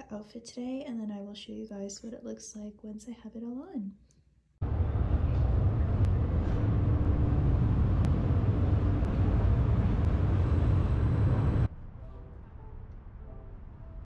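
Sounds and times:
faint high whine: 4.6 - 14.0
light-rail train rumbling past: 4.6 - 14.0.

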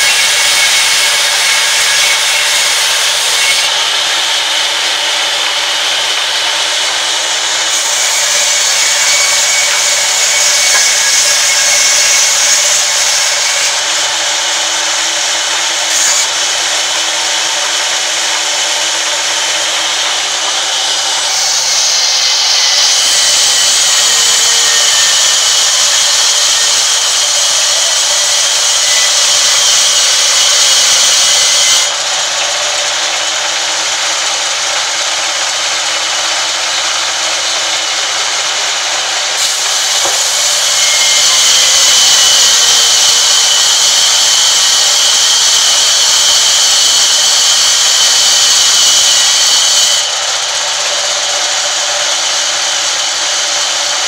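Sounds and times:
band saw ripping timber: 0.0 - 54.0.

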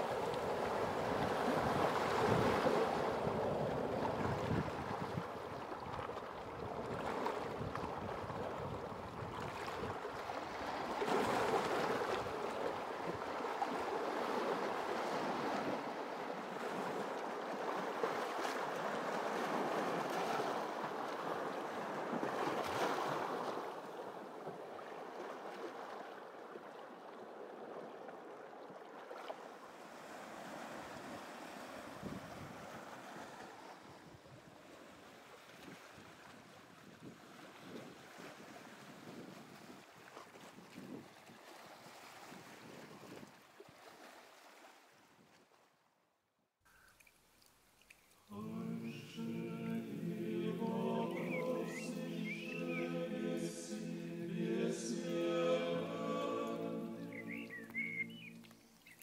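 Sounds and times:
waves lapping on rocky shore: 0.0 - 45.3, 46.8 - 59.0.

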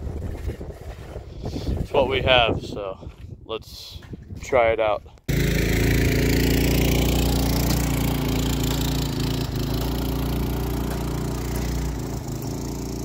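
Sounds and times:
small engine driving away: 5.3 - 13.0.

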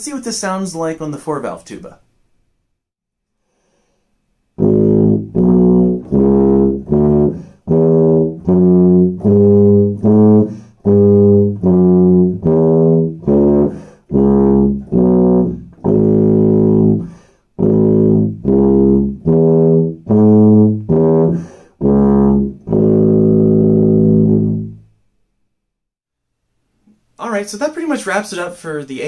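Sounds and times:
tuba playing a scale: 4.6 - 24.9.

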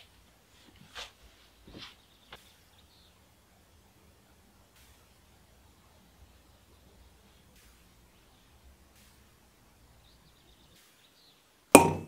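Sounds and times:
soft scuff: 0.6 - 2.6.

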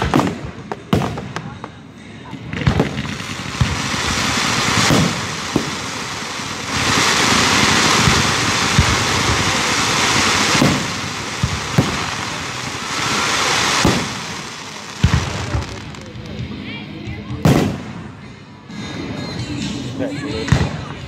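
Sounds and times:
fireworks bangs: 0.0 - 16.6, 17.4 - 18.4
hissing spark fountains: 2.9 - 16.3.

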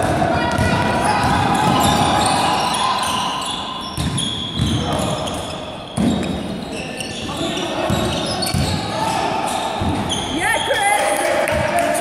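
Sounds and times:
basketball bouncing: 0.0 - 2.4, 3.9 - 5.4, 7.8 - 8.8
players calling out: 0.0 - 12.0
sneakers squeaking on floor: 0.5 - 11.7.

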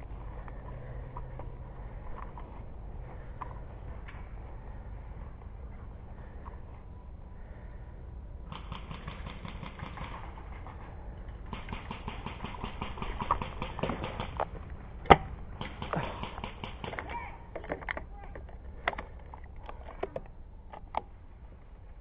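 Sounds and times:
steady low rumble: 0.0 - 22.0
sharp crack: 8.5 - 10.4, 11.5 - 17.2
automatic airsoft gunfire bursts: 11.5 - 14.4.

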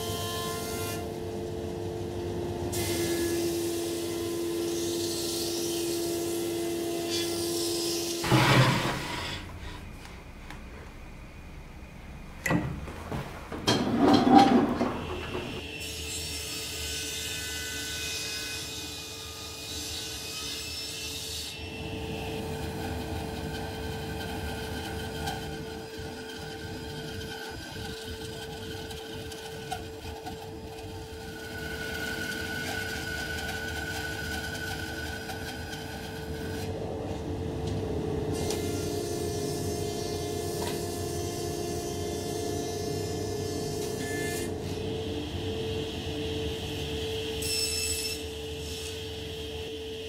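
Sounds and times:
table saw cutting wood: 2.7 - 9.8, 13.8 - 36.8, 38.3 - 44.9, 46.4 - 50.0
steady machine hum: 8.3 - 15.8, 21.6 - 43.8
thickness planer running: 21.5 - 42.0
bandsaw cutting wood: 22.4 - 36.7.

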